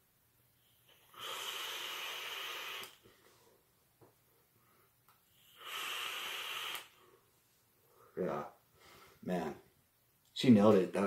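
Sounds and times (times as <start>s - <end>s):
vape hiss: 0.6s - 3.1s, 5.3s - 7.2s
breath hiss: 0.6s - 3.3s, 4.6s - 7.3s.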